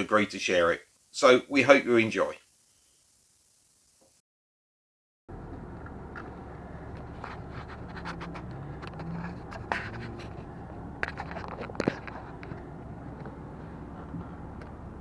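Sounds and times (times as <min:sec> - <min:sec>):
steady low rumble: 0:05.3 - 0:15.0.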